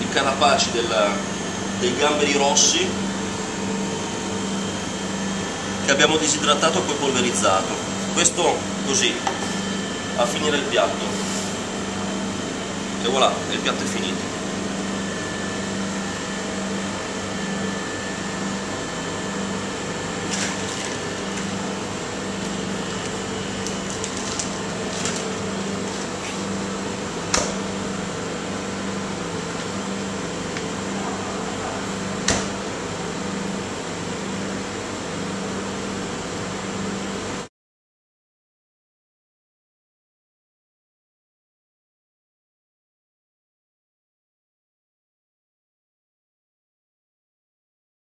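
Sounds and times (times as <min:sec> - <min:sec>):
ventilation fan hum: 0:00.0 - 0:37.5.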